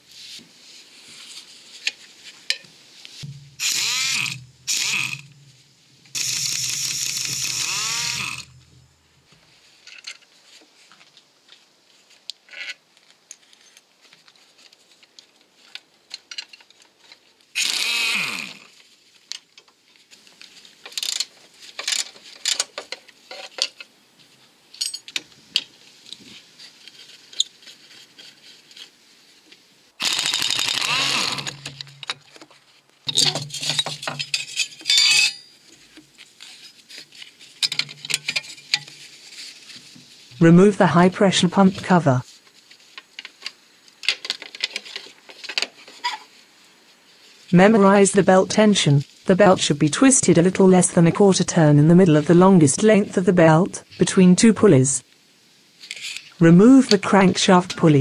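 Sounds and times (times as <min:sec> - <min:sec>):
power tool running in bursts: 0:03.6 - 0:05.3, 0:06.2 - 0:08.5, 0:17.6 - 0:18.6, 0:30.0 - 0:31.6
tools clicking and knocking on metal: 0:33.1 - 0:35.5, 0:37.6 - 0:39.0.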